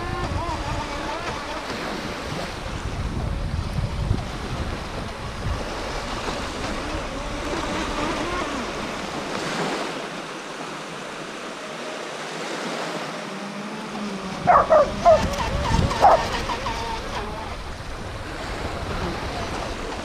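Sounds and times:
wind buffeting microphone: 0:00.0 - 0:09.6, 0:14.0 - 0:20.0
small waves lapping at shore: 0:00.0 - 0:20.0
dog barking: 0:14.5 - 0:15.3, 0:15.9 - 0:16.4.

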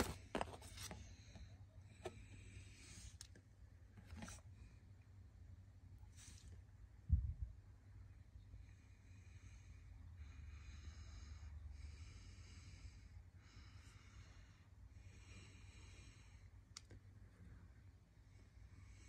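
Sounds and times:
faint slow breathing: 0:08.5 - 0:19.0.

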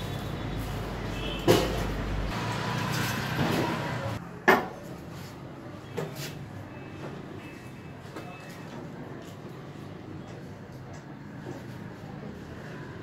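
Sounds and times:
vegetable stall background noise: 0:00.0 - 0:13.0.

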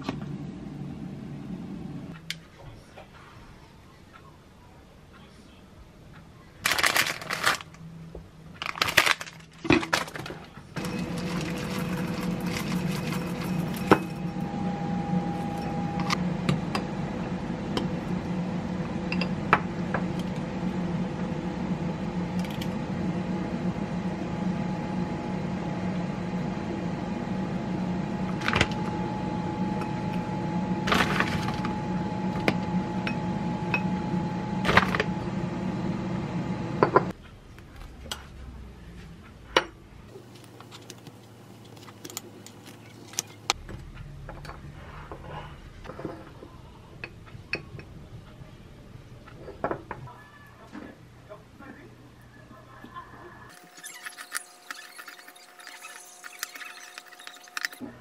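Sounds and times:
air fryer fan hum: 0:00.0 - 0:02.1, 0:10.8 - 0:37.2.

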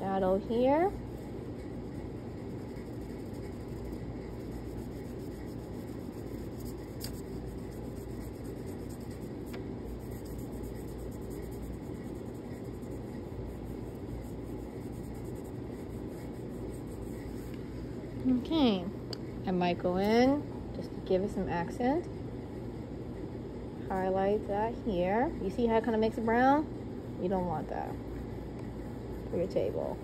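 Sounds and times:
fingertips rubbing paper: 0:00.0 - 0:17.5
steady low hum: 0:00.0 - 0:30.0
chalk pastel scraping on paper: 0:00.2 - 0:17.6.

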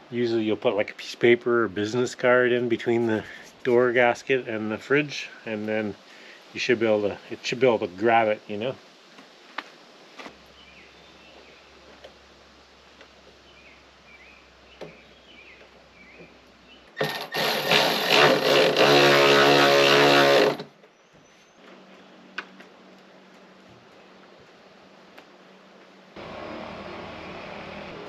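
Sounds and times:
power drill running: 0:17.0 - 0:20.7, 0:26.2 - 0:28.0.

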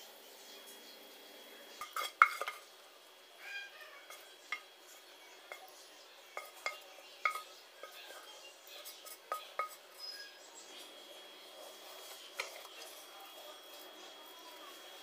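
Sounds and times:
spatula scraping sauce from pan: 0:01.7 - 0:02.7, 0:06.3 - 0:10.4, 0:11.4 - 0:13.9.

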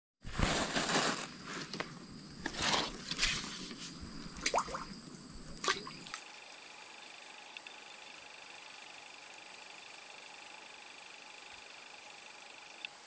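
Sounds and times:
wet handling noises: 0:02.4 - 0:06.2
water splashing: 0:04.1 - 0:06.2.

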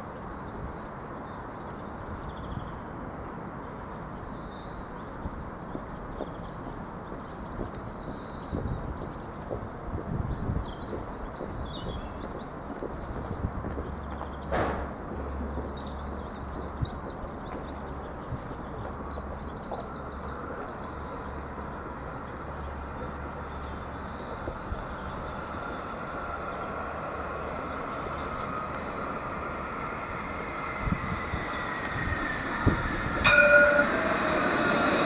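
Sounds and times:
tram running on rails: 0:00.0 - 0:35.0
birds chirping: 0:00.3 - 0:35.0
electric whine: 0:28.2 - 0:35.0.

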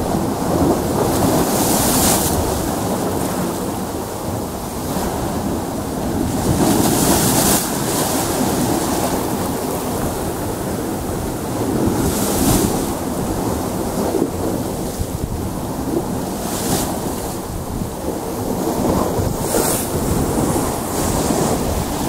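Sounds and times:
choppy surf: 0:00.0 - 0:22.0
waves breaking on rocks: 0:00.0 - 0:22.0.

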